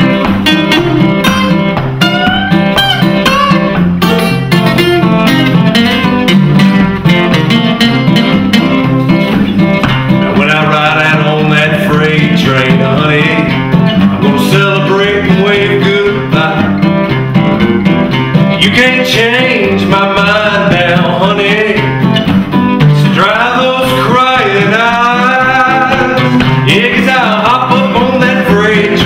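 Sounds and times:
acoustic guitars strumming: 0:00.0 - 0:29.0
man singing: 0:10.2 - 0:17.2, 0:18.4 - 0:29.0.

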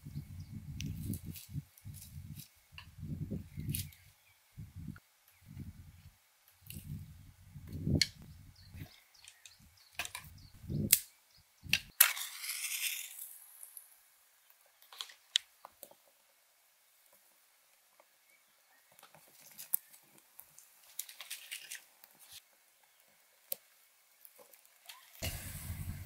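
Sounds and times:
twigs rustling: 0:18.9 - 0:23.6
fire crackling and snapping: 0:18.9 - 0:26.0.

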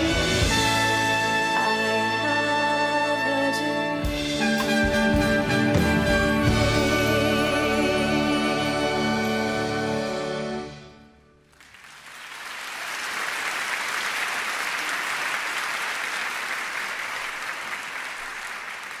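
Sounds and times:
audience applause: 0:11.5 - 0:19.0.

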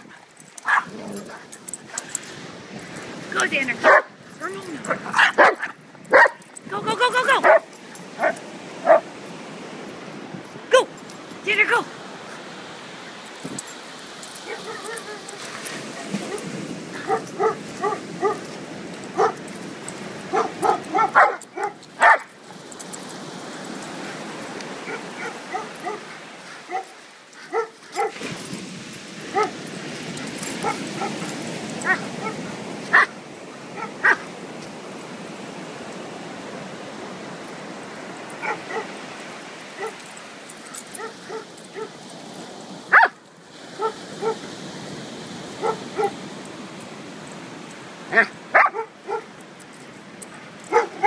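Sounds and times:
dog yipping and barking: 0:00.6 - 0:01.3, 0:03.8 - 0:04.1, 0:04.9 - 0:06.4, 0:07.2 - 0:09.0, 0:14.4 - 0:15.4, 0:17.0 - 0:18.5, 0:19.2 - 0:19.4, 0:20.3 - 0:22.3, 0:24.8 - 0:26.0, 0:26.7 - 0:28.2, 0:29.3 - 0:29.6, 0:30.6 - 0:31.2, 0:31.8 - 0:33.1, 0:33.8 - 0:34.2, 0:38.4 - 0:39.0, 0:39.8 - 0:40.0, 0:41.0 - 0:42.0, 0:42.9 - 0:43.2, 0:43.8 - 0:44.4, 0:45.6 - 0:46.2, 0:48.1 - 0:49.3, 0:50.7 - 0:51.0.

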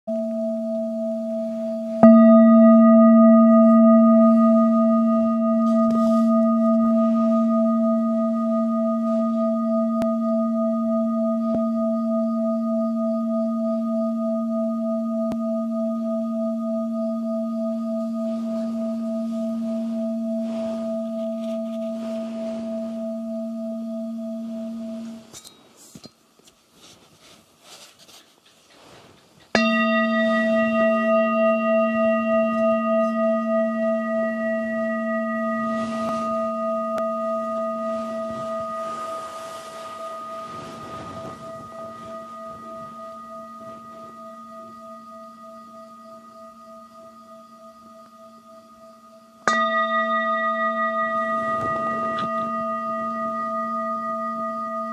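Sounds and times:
singing bowl ringing: 0:00.1 - 0:25.7, 0:29.6 - 0:54.9
small handling noises: 0:24.9 - 0:29.6.

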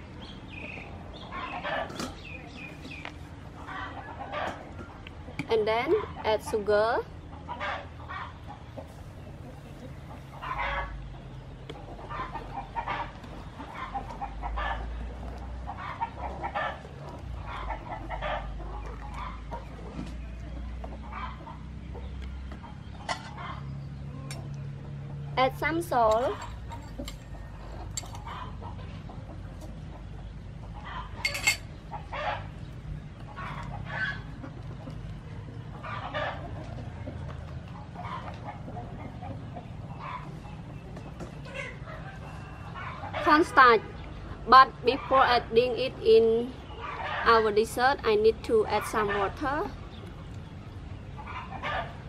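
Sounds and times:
chickens clucking: 0:00.0 - 0:52.0
sharp clink: 0:31.2 - 0:31.7.

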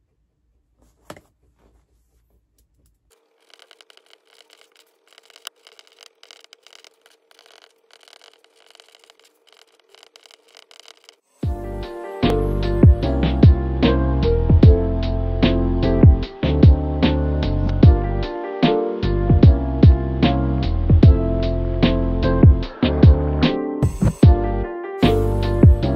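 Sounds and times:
pen scratching on paper: 0:03.4 - 0:11.4
music: 0:11.4 - 0:25.9.

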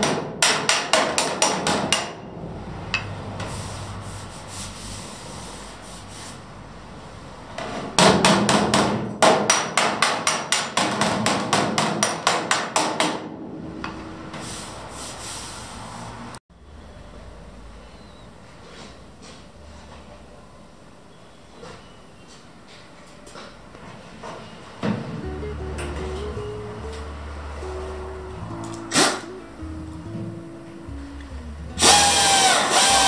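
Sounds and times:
rubbing and scraping: 0:14.3 - 0:16.3.

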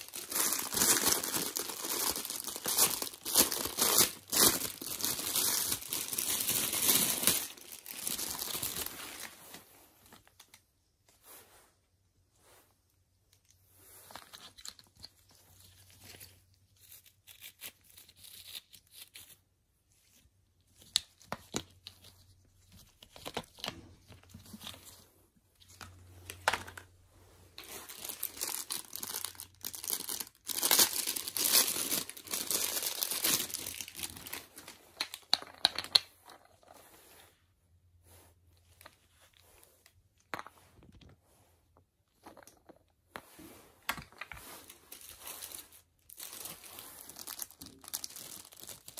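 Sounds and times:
plastic packaging crinkling and tearing: 0:00.0 - 0:09.3, 0:27.6 - 0:35.2, 0:44.9 - 0:48.9.

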